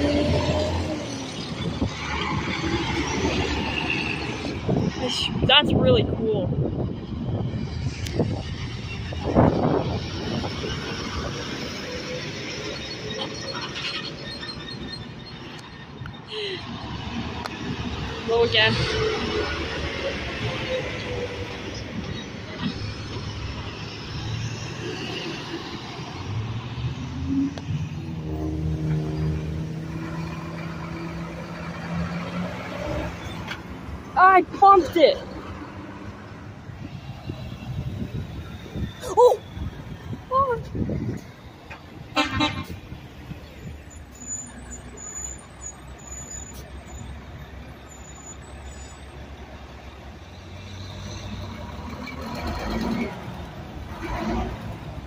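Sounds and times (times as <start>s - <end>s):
dump truck diesel engine: 0.0s - 55.0s
road traffic noise: 0.0s - 55.0s
truck horn toot: 42.1s - 42.8s.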